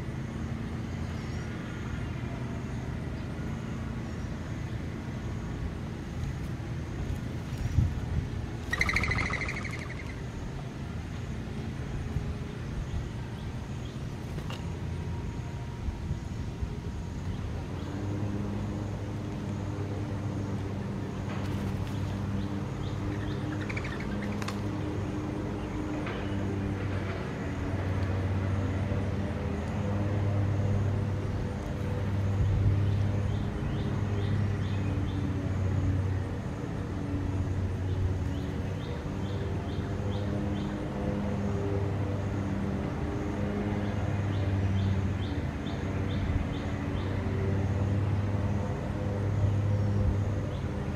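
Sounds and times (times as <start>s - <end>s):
low motor hum: 0.0s - 50.9s
dove wings whistling: 8.6s - 10.2s
small bird chirping: 8.6s - 10.2s, 21.9s - 24.6s.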